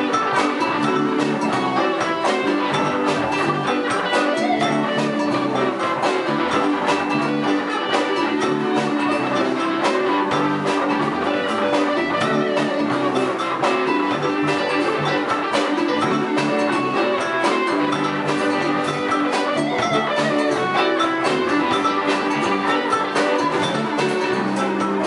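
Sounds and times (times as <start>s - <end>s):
drum beat: 0.0s - 25.0s
electric bass: 0.0s - 25.0s
electric guitar: 0.0s - 25.0s
live band playing instrumental: 0.0s - 25.0s.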